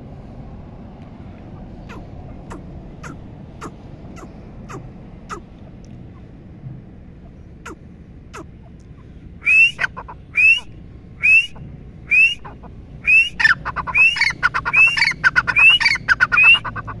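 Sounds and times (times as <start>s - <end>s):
bird chattering notes: 1.5s - 6.3s, 7.2s - 10.7s, 12.2s - 17.0s
bird whistled calls: 9.4s - 16.9s.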